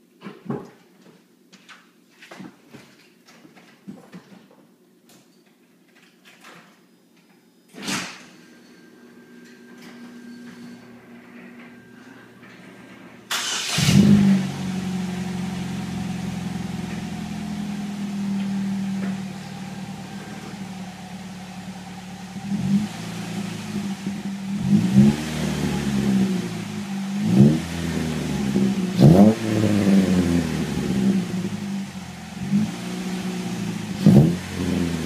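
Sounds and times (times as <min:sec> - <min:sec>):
car engine starting: 0:09.1 - 0:35.0
car engine idling: 0:13.3 - 0:35.0
car engine revving: 0:13.3 - 0:35.0.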